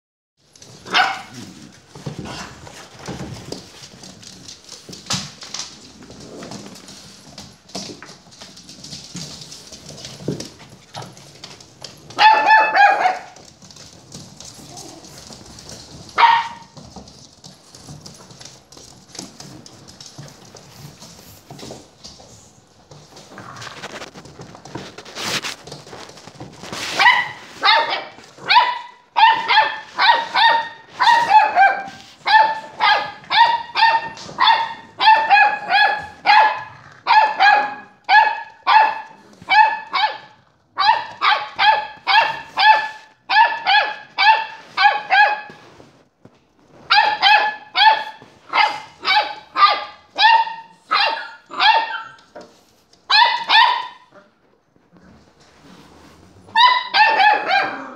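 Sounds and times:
dog yapping: 12.2s - 13.4s, 26.9s - 45.6s, 46.9s - 52.2s, 56.5s - 57.9s.

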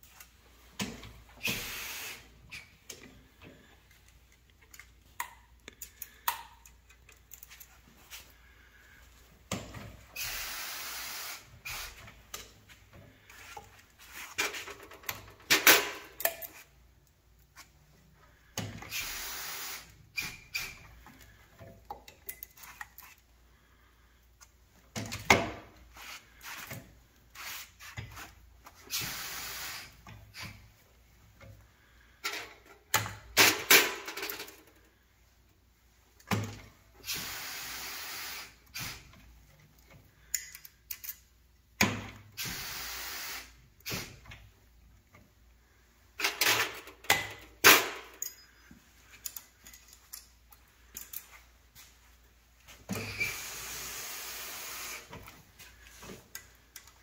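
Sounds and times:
short hisses: 1.4s - 2.3s, 10.1s - 12.0s.

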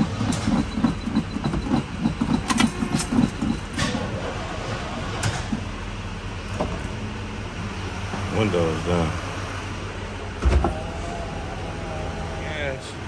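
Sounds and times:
truck starter cranking engine: 0.0s - 4.2s.

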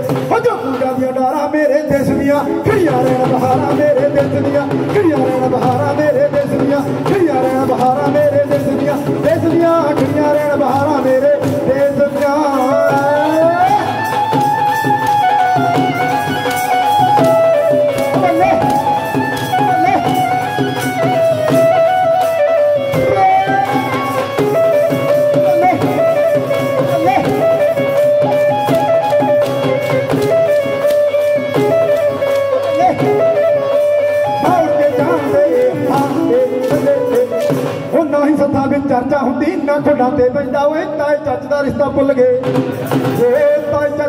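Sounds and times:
dhol drumming: 0.0s - 44.0s
keyboard melody with pitch glides: 12.6s - 38.0s.

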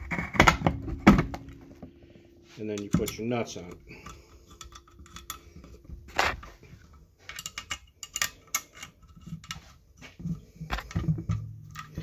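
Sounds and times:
metal parts clicking and clinking: 2.7s - 9.7s, 10.7s - 12.0s.

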